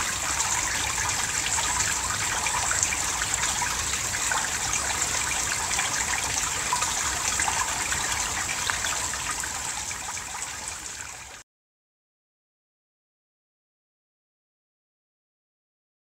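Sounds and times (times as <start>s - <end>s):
stream water trickling: 0.0s - 11.4s.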